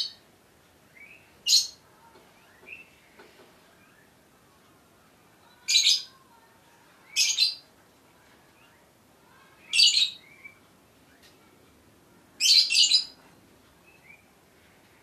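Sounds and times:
bird chirping: 0.9s - 4.2s, 7.0s - 7.7s, 8.5s - 11.4s, 12.4s - 13.2s, 13.8s - 14.4s.

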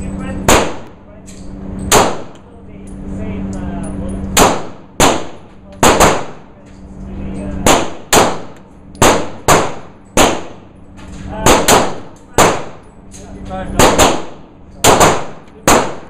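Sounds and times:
pistol shots indoors: 0.4s - 2.4s, 4.2s - 6.4s, 7.6s - 10.7s, 11.4s - 12.9s, 13.7s - 16.0s.

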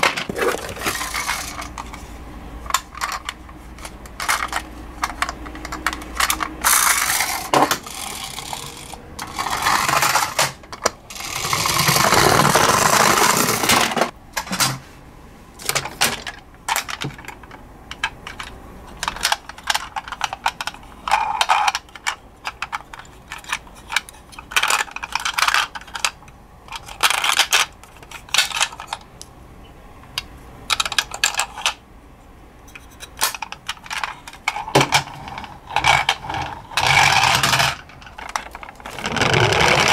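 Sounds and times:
plastic toys clicking and knocking: 0.0s - 2.0s, 2.6s - 14.8s, 15.6s - 29.1s, 30.1s - 31.8s, 32.7s - 39.9s
plastic rasping and rubbing: 0.0s - 2.2s, 2.8s - 14.1s, 32.7s - 39.9s.

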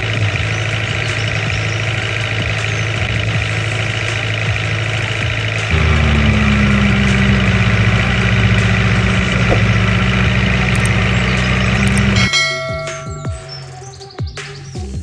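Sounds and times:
heavy vehicle engine running: 0.0s - 15.0s.

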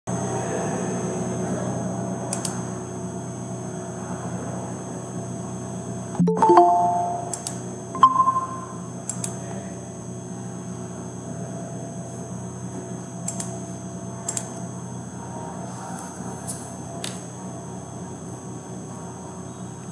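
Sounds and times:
brief electronic tone: 6.2s - 8.9s
short electronic chime: 6.2s - 8.9s.

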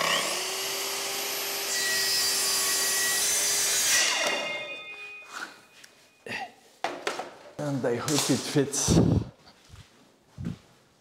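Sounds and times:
saw motor winding down: 0.0s - 4.6s
saw cutting wood: 0.0s - 5.0s.

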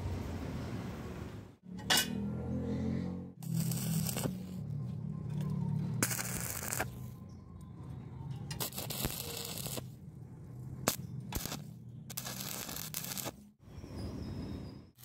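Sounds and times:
welding arc crackling: 3.4s - 4.7s, 6.0s - 7.1s, 8.6s - 9.9s, 10.8s - 13.5s.

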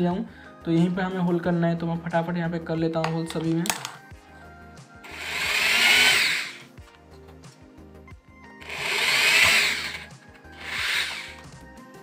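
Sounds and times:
background music: 0.0s - 12.0s
electric drill boring plywood: 5.1s - 6.7s, 8.6s - 11.5s.

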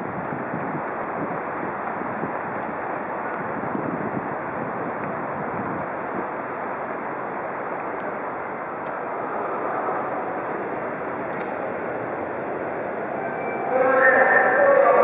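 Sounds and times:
wind blowing on microphone: 0.0s - 6.4s
distant traffic: 0.0s - 15.0s.

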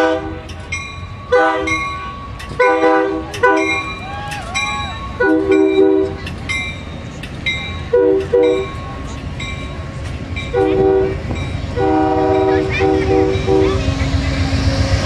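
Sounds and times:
train horn blasts: 0.0s - 0.5s, 1.3s - 1.9s, 2.5s - 4.0s, 5.2s - 6.2s, 7.9s - 8.7s, 10.5s - 13.9s
train wheels rumbling on rails: 0.0s - 15.0s
bell ringing: 3.6s - 10.7s.

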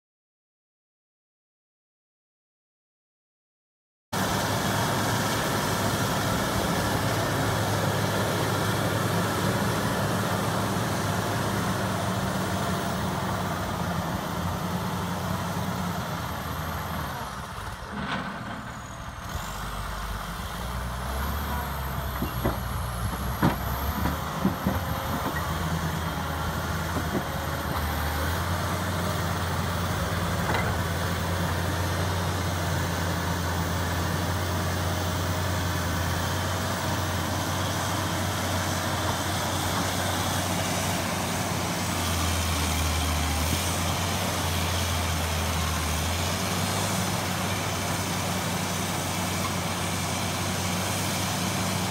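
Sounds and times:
diesel engine running: 4.2s - 51.9s.

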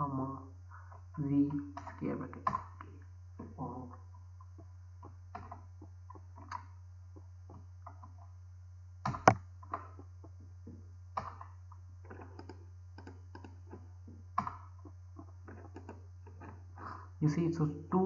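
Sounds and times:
steady low hum: 0.0s - 18.0s
keyboard keystrokes and clicks: 12.1s - 13.8s.

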